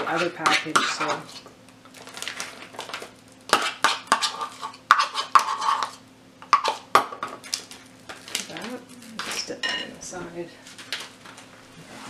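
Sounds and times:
spoon scraping a cup: 0.0s - 1.4s, 3.6s - 6.8s.

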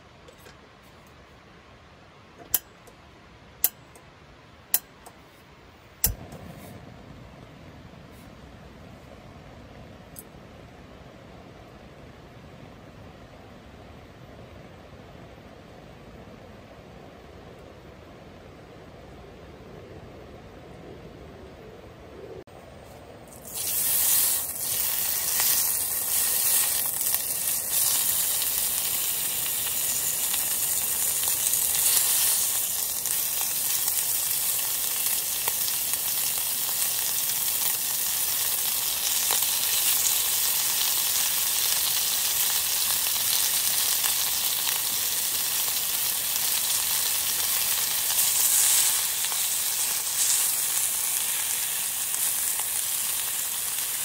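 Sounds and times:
meat sizzling in hot oil: 23.3s - 54.0s.

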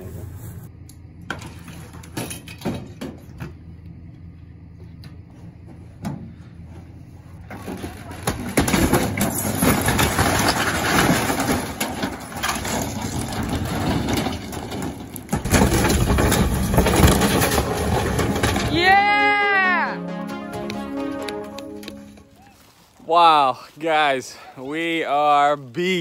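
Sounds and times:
metal and wood tearing and crashing: 7.5s - 19.3s.

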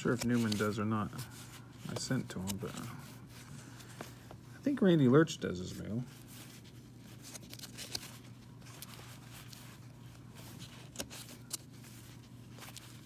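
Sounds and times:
cards rustling: 0.0s - 13.0s
low steady hum: 0.0s - 13.0s.

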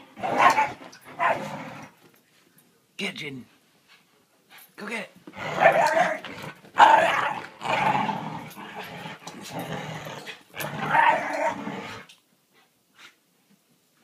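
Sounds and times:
dogs growling in play: 0.0s - 2.0s, 5.3s - 12.1s.

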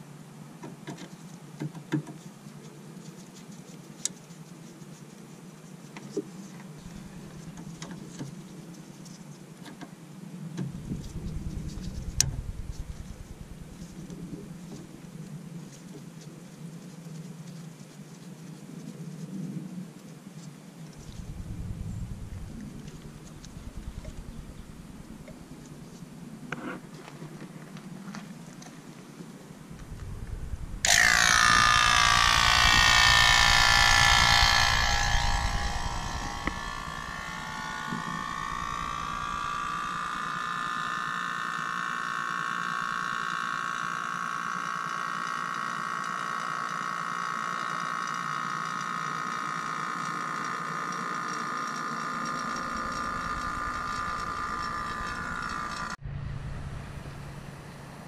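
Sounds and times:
machine whine: 6.8s - 7.7s, 10.7s - 15.0s, 21.0s - 26.6s, 29.6s - 58.0s.

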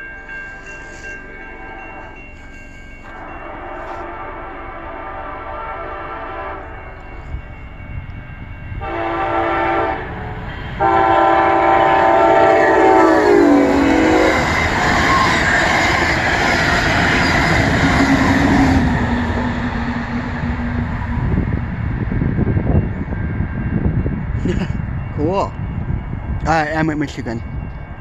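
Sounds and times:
train horn blasts: 3.0s - 7.1s, 8.8s - 15.4s
train wheel noise: 6.1s - 28.0s.

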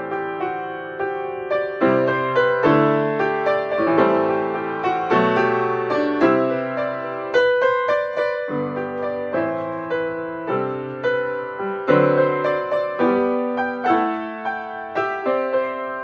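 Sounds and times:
upright piano playing: 0.0s - 16.0s.

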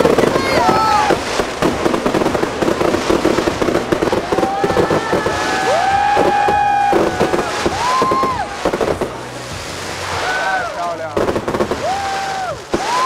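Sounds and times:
fireworks crackling and popping: 0.0s - 13.0s
people cheering and whooping: 0.3s - 1.3s, 4.0s - 13.0s.

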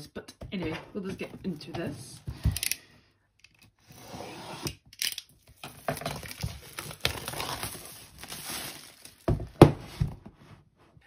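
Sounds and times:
plastic film tearing and crinkling: 5.4s - 9.6s
knife slitting plastic wrap: 5.8s - 9.3s.

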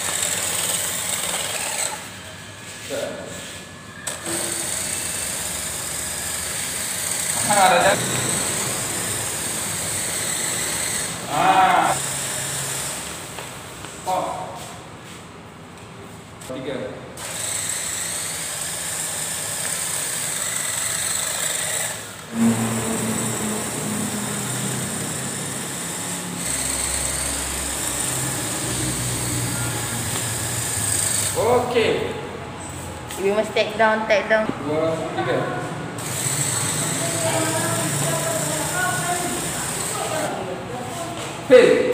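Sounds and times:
rc car motor whine: 0.0s - 3.1s, 3.7s - 13.4s, 17.2s - 31.9s, 36.0s - 41.1s.

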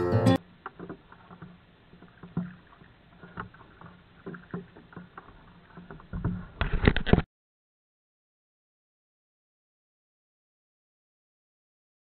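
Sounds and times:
water drips: 0.4s - 6.6s
kayak paddle splashing water: 0.4s - 7.2s.

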